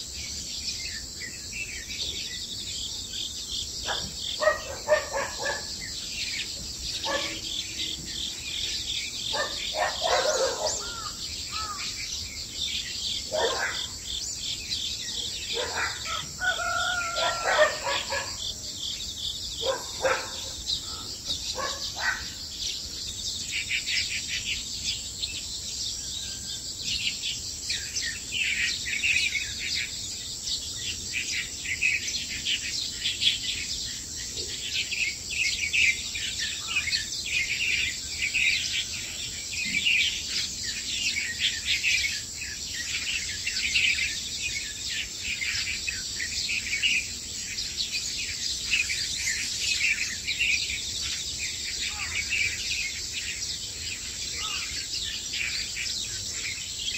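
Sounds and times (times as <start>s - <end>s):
high insect drone: 0.0s - 56.9s
small birds chirping: 0.0s - 56.9s.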